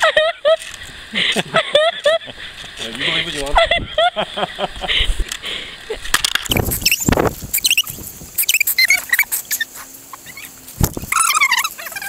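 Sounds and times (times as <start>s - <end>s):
wings fluttering: 6.4s - 12.0s
parrots chirping: 6.5s - 12.0s.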